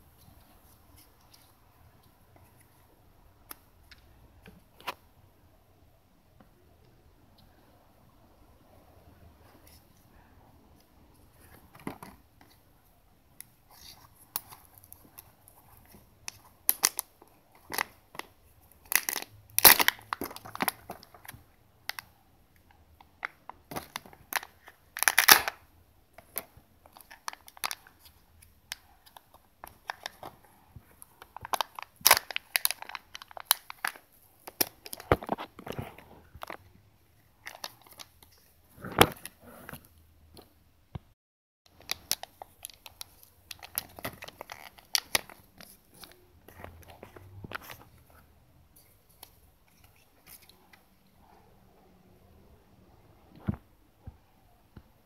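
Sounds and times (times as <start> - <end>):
foil wrapper crinkling and tearing: 23.8 - 25.6, 31.2 - 35.8.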